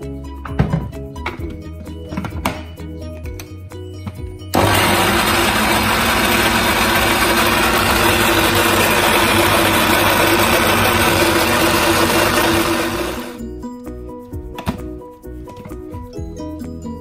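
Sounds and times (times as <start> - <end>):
blender grinding: 4.6 - 13.4.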